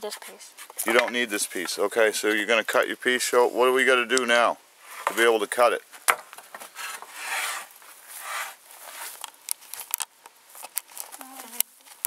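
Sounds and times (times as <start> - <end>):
board scraping on workbench: 4.8 - 5.2, 6.5 - 9.2.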